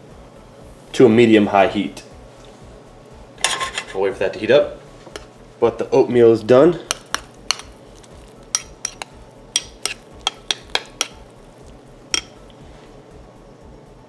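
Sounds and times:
spoon clinking against bowl: 0:06.8 - 0:11.3, 0:12.1 - 0:12.6.

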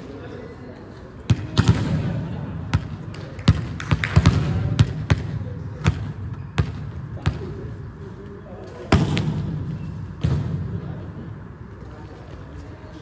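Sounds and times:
volleyballs smacking on hard floor: 0:02.7 - 0:07.5.

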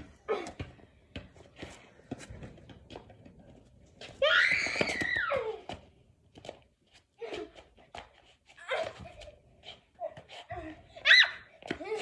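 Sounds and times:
child squealing: 0:04.2 - 0:05.6, 0:11.0 - 0:12.0.

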